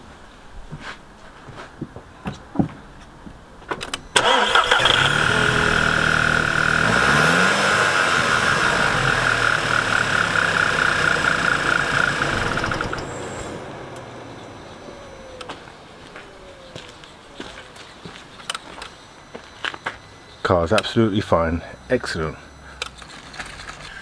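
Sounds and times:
car engine starting and idling: 0:03.8 - 0:17.8
high engine whine: 0:03.8 - 0:24.0.

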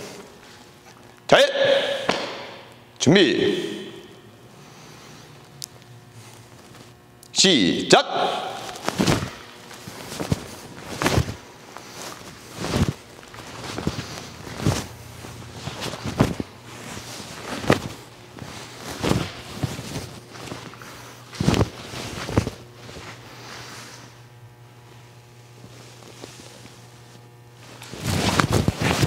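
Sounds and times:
bare feet thudding on mats: 0:02.0 - 0:02.6, 0:08.8 - 0:11.4
uniform snapping on strikes: 0:02.0 - 0:02.7.

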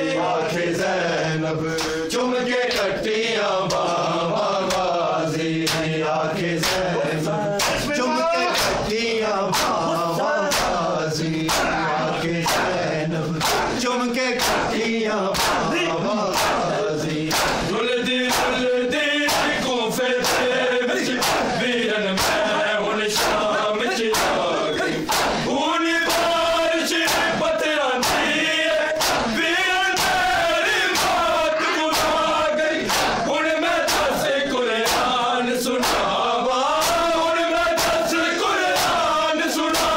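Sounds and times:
men chanting in unison: 0:00.0 - 0:39.9
hands slapping chests: 0:01.7 - 0:02.0, 0:03.6 - 0:04.0, 0:04.6 - 0:05.0, 0:05.6 - 0:05.9, 0:06.6 - 0:06.9, 0:07.5 - 0:08.9, 0:09.5 - 0:09.9, 0:10.5 - 0:10.8, 0:11.4 - 0:11.8, 0:12.4 - 0:12.8, 0:13.4 - 0:13.8, 0:14.4 - 0:17.7, 0:18.3 - 0:18.6, 0:19.3 - 0:21.6, 0:22.2 - 0:23.5, 0:24.1 - 0:25.5, 0:26.1 - 0:26.4, 0:27.0 - 0:27.4, 0:28.0 - 0:34.2, 0:34.8 - 0:35.2, 0:35.8 - 0:36.2, 0:36.8 - 0:39.9.

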